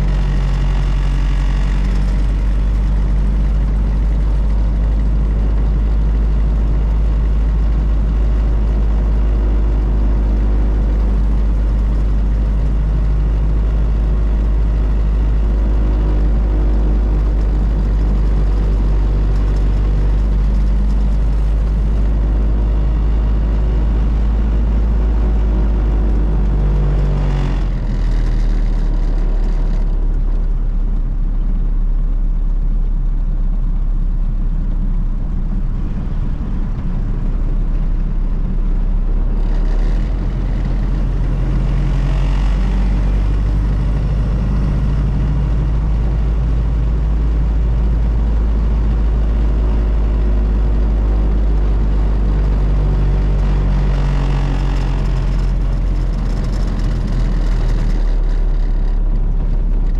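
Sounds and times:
car engine drone from inside: 0:00.0 - 0:59.9.

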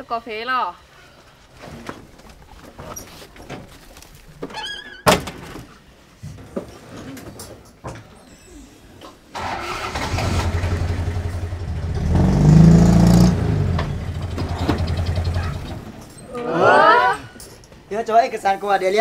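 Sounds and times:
truck engine starting and idling: 0:09.3 - 0:16.0
truck engine revving: 0:09.4 - 0:15.9.

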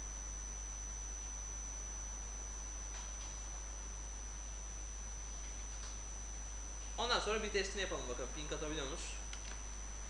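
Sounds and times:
low electrical hum: 0:00.0 - 0:10.0
thin high whine: 0:00.0 - 0:10.0.

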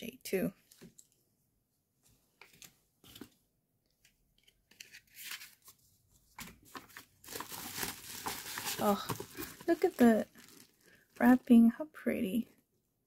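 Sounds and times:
rustling of packaging and paper: 0:04.4 - 0:11.4.

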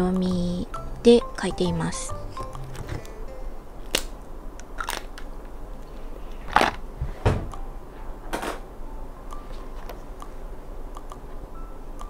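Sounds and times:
desk items clicking and crunching: 0:04.8 - 0:05.3, 0:06.4 - 0:06.8.

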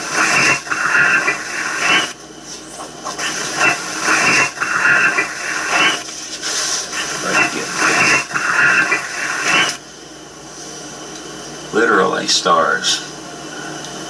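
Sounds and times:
loud recording hiss: 0:00.0 - 0:02.2, 0:03.0 - 0:09.8.

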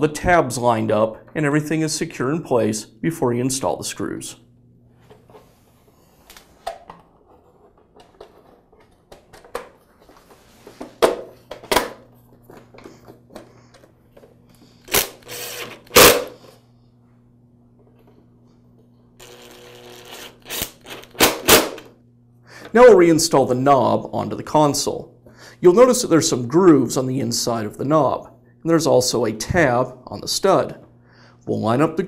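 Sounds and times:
cordless screwdriver whirring: 0:14.8 - 0:16.4, 0:19.2 - 0:21.9.

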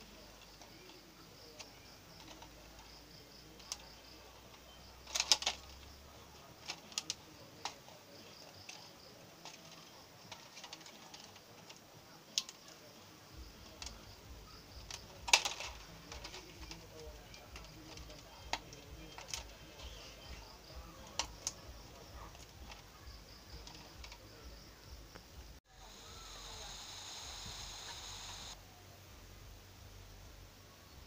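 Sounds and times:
plastic bottle clicking and crackling: 0:03.6 - 0:05.9, 0:14.8 - 0:22.9.

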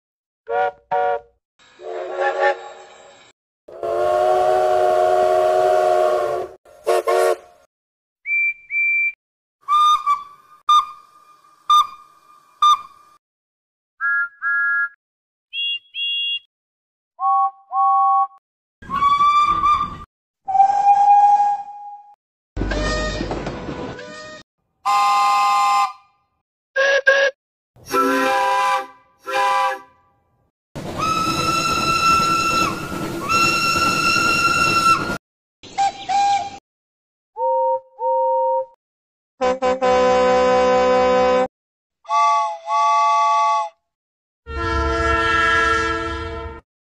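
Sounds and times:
steam locomotive chime whistle: 0:03.8 - 0:07.4, 0:27.9 - 0:29.9, 0:31.0 - 0:35.2
steam whistle short toots: 0:03.8 - 0:07.4, 0:26.8 - 0:30.0.

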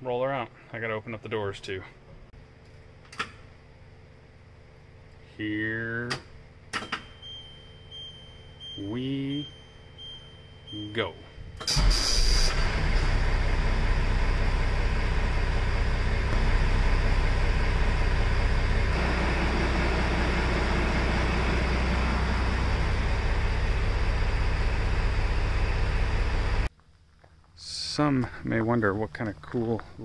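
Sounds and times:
fire truck engine running: 0:11.7 - 0:26.7.

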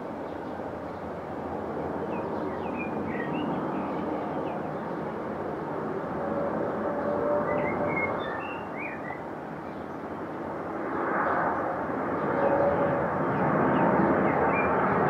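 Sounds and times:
jet airliner engines roaring: 0:00.0 - 0:15.0
bird chirping: 0:02.1 - 0:04.9, 0:07.4 - 0:10.0.

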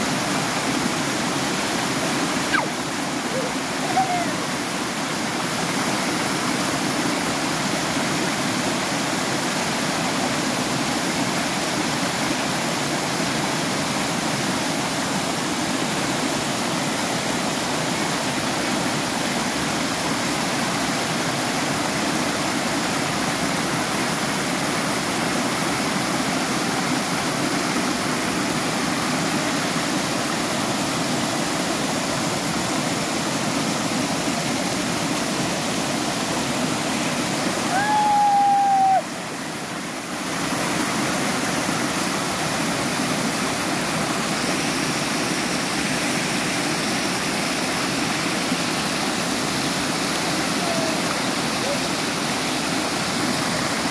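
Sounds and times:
waterfall pouring over rocks: 0:00.0 - 0:53.9.

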